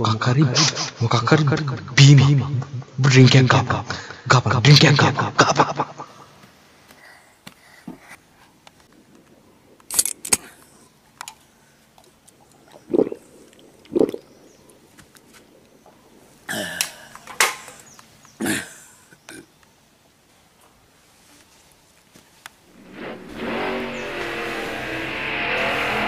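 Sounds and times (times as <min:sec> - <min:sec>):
gulping: 0:12.0 - 0:14.3
person spluttering and coughing: 0:12.9 - 0:13.3, 0:16.5 - 0:17.8, 0:18.4 - 0:19.5.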